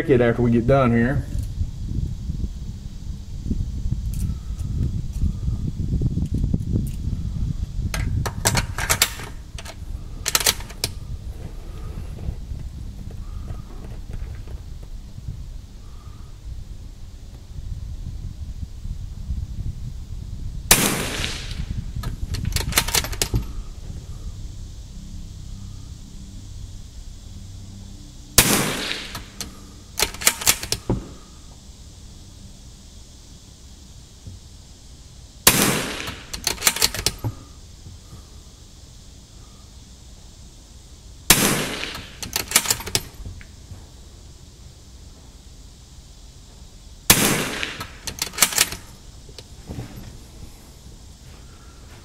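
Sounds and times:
low wind rumble: 0:00.0 - 0:52.0
sharp clicks: 0:07.9 - 0:11.0, 0:20.7 - 0:23.5, 0:28.4 - 0:31.1, 0:35.5 - 0:37.5, 0:41.3 - 0:43.5, 0:47.1 - 0:49.5
rifle shot with echo: 0:20.7 - 0:21.6, 0:28.4 - 0:31.2, 0:35.5 - 0:36.9, 0:41.3 - 0:42.8, 0:47.1 - 0:48.7.

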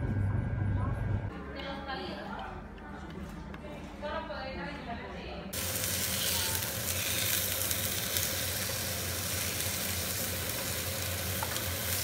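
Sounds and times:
low steady hum: 0:00.0 - 0:02.6
chicken sizzling in frying pan: 0:05.6 - 0:12.0.

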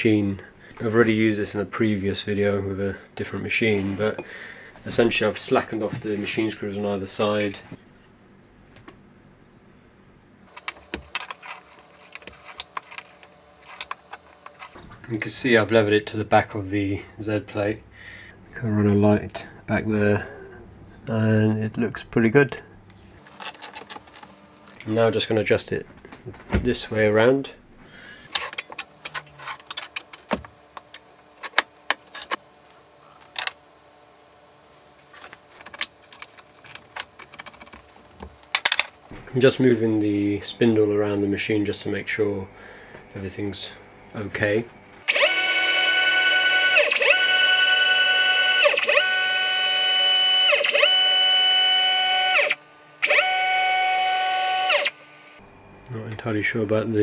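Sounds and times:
stepper motors whining: 0:44.5 - 0:55.4.

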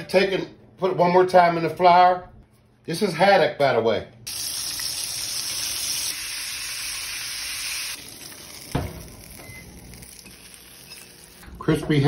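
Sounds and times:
fish frying in hot oil: 0:04.3 - 0:11.4
thump: 0:08.7 - 0:09.1.

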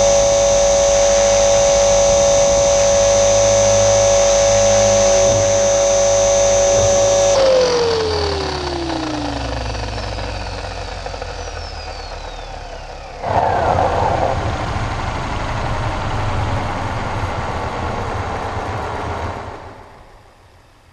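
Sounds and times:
rc helicopter motor whining: 0:00.0 - 0:20.4
loud rushing noise: 0:13.2 - 0:19.8.

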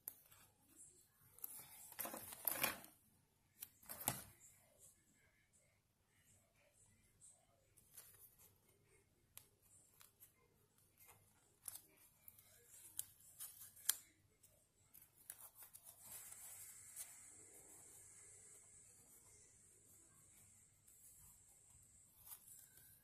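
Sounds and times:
paper clicks and crinkles: 0:01.3 - 0:02.9, 0:07.8 - 0:14.2, 0:14.9 - 0:17.7, 0:22.0 - 0:23.0.

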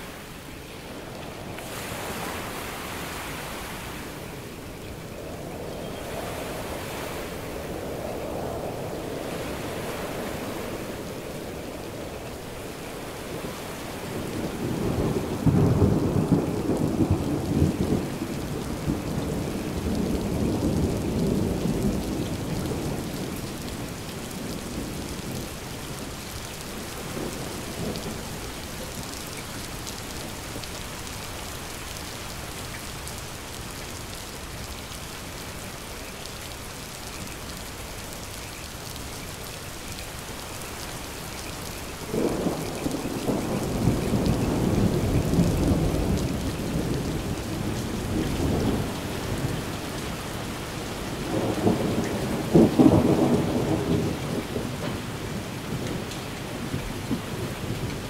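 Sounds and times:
steady rain: 0:00.0 - 0:58.0
rolling thunder: 0:13.3 - 0:26.2, 0:42.1 - 0:50.0, 0:51.2 - 0:58.0.

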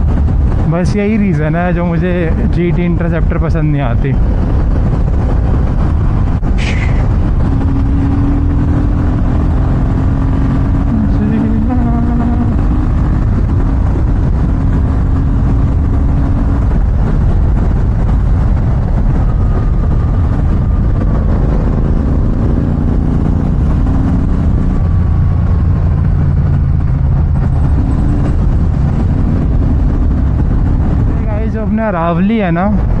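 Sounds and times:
motorcycle engine while riding: 0:00.0 - 0:03.4, 0:04.0 - 0:33.0.

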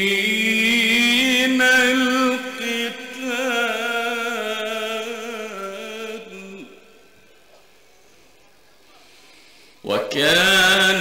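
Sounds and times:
man reciting melodically: 0:00.0 - 0:07.4, 0:09.8 - 0:11.0.

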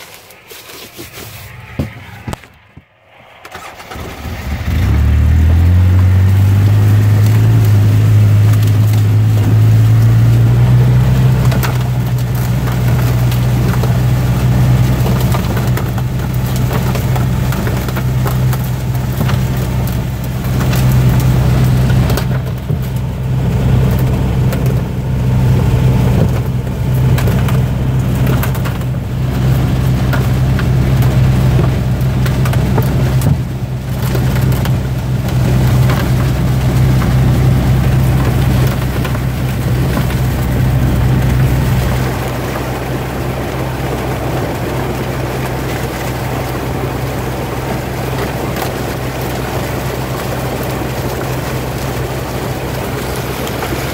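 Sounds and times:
low engine drone: 0:00.0 - 0:53.9
machinery clatter: 0:11.2 - 0:47.2.

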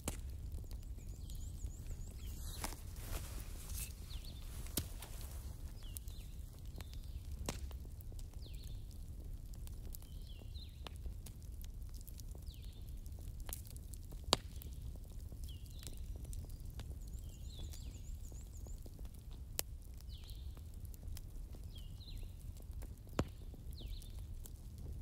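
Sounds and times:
fire popping: 0:00.0 - 0:25.0
wood fire crackling: 0:00.0 - 0:25.0
bird chirping: 0:00.6 - 0:07.1.

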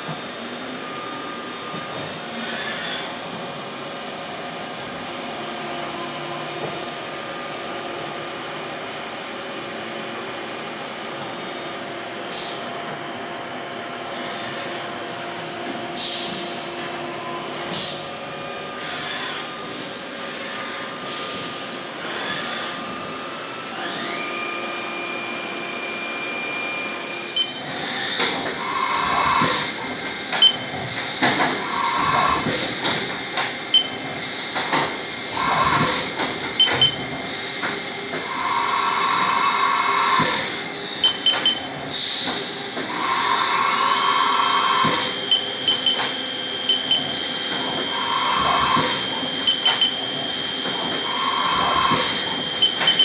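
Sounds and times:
milling machine hum and whine: 0:00.0 - 0:53.0
rising machine whine: 0:38.2 - 0:41.7, 0:42.7 - 0:53.0.

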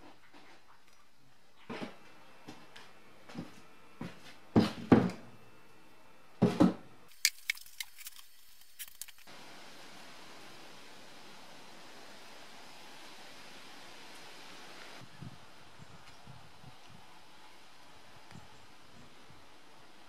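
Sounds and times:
steady hiss: 0:07.1 - 0:20.0.

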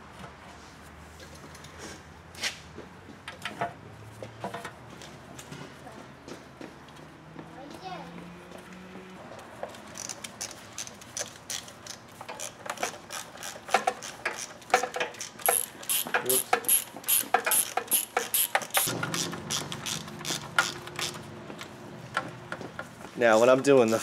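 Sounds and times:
hand ratchet clicking: 0:10.0 - 0:21.2.

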